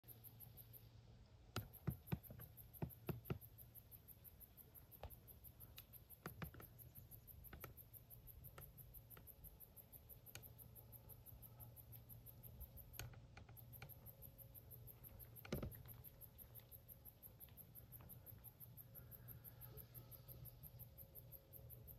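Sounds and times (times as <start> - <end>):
insect chirring: 0.0 - 21.9
soft clicks: 5.0 - 20.2.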